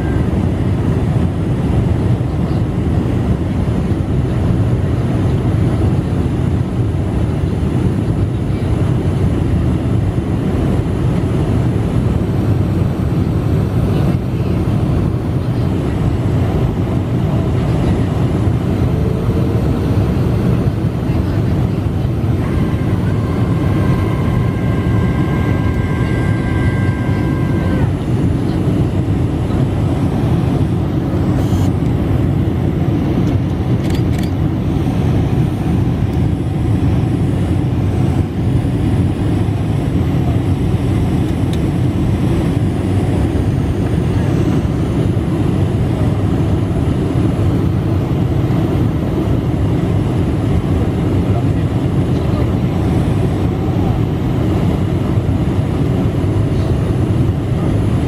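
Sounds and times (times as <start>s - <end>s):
jet engine and airflow rumble: 0.0s - 58.0s
faint high whine: 17.7s - 31.8s.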